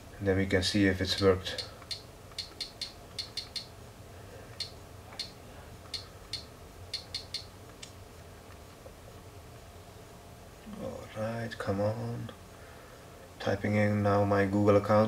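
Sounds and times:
touchscreen typing clicks: 1.6 - 3.7, 6.3 - 7.5.

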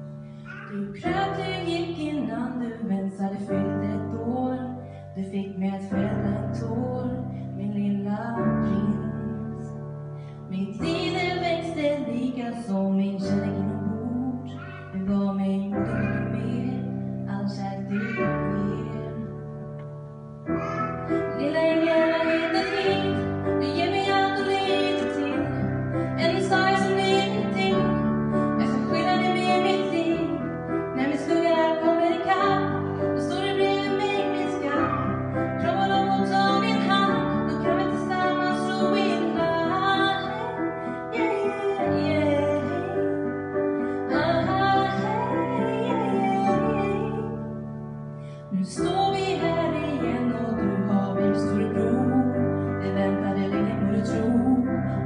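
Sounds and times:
keyboard chords: 0.0 - 2.8, 15.5 - 55.0
woman singing: 0.6 - 9.8, 10.5 - 19.5, 21.2 - 47.6, 48.5 - 55.0.

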